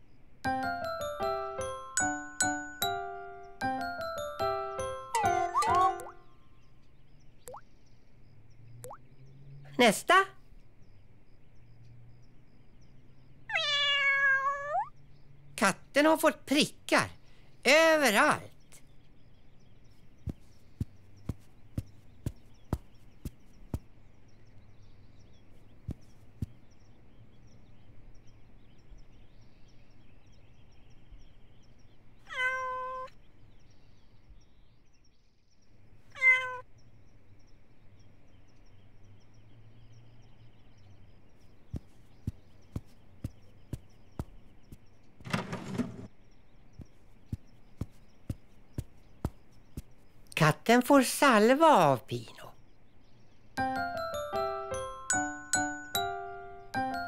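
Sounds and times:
cartoon cat meowing: 0:05.2 - 0:06.1, 0:13.5 - 0:14.9, 0:32.3 - 0:33.1, 0:36.1 - 0:36.6.

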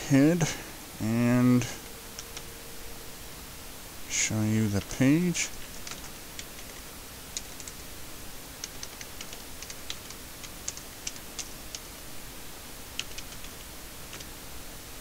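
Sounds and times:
steady background hiss: 0:00.0 - 0:15.0
keyboard typing clicks: 0:08.6 - 0:11.9, 0:13.0 - 0:14.3.

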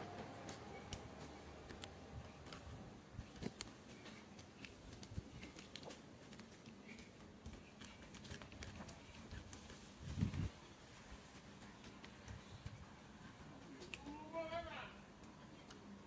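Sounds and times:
monkey chewing crunchy food: 0:02.4 - 0:10.4.

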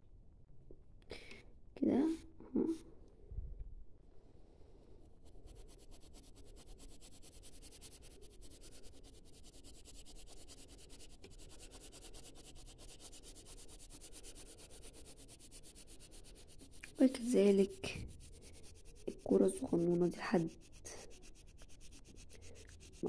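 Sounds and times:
pencil scratching on paper: 0:05.0 - 0:23.0.

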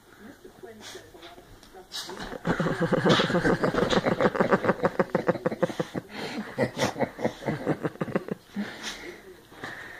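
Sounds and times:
person giggling: 0:02.2 - 0:08.8.

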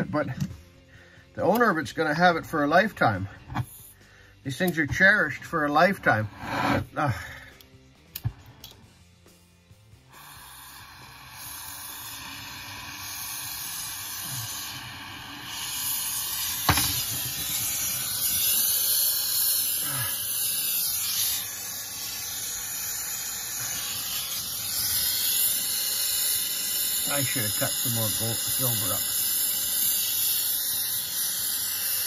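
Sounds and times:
gas torch hissing: 0:00.0 - 0:09.0, 0:09.8 - 0:32.0
sharp click: 0:07.6 - 0:08.8.

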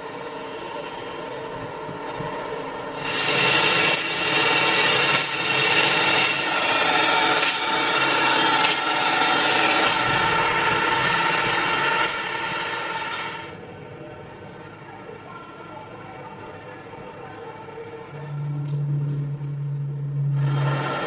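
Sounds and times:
line-marking machine droning: 0:00.0 - 0:13.6, 0:18.0 - 0:21.0.

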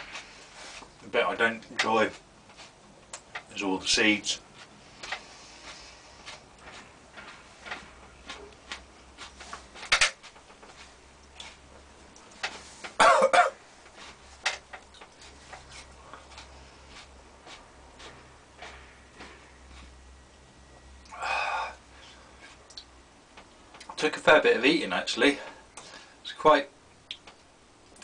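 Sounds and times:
short harsh cough: 0:13.0 - 0:13.6
wet mouth clicks and smacks: 0:22.7 - 0:22.9, 0:27.0 - 0:28.0.

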